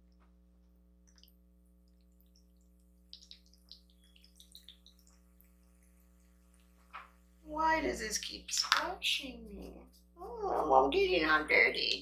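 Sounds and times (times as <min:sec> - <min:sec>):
wet clicks and smacks of eating: 0:01.0 - 0:07.1.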